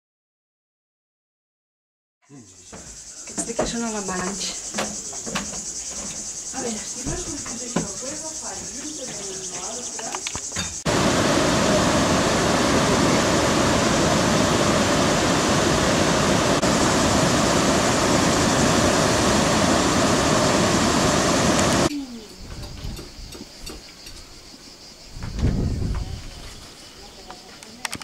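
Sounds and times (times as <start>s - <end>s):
faint insect chirring: 2.2s - 10.9s, 19.4s - 28.0s
water rushing over weir: 10.9s - 21.9s.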